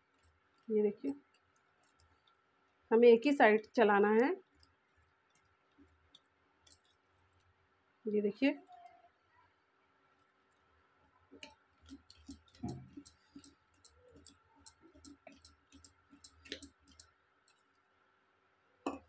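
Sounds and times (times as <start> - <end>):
whisk clicking in steel bowl: 0.0 - 2.1, 11.4 - 17.6.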